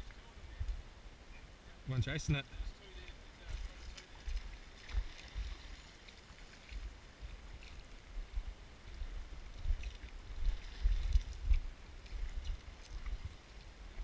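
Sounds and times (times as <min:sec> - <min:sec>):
wind buffeting microphone: 0:06.7 - 0:14.0.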